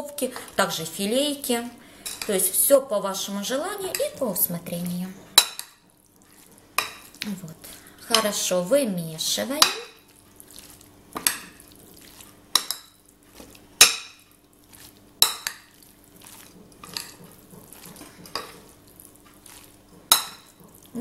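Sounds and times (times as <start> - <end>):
spoon scraping and mixing salad: 2.0 - 2.6, 3.5 - 20.9.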